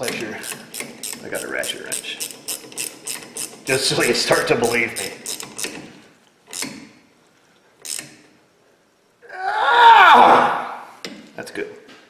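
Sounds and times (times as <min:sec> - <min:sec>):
ratchet wrench clicks: 0:00.0 - 0:05.8, 0:06.5 - 0:06.8, 0:07.8 - 0:08.2.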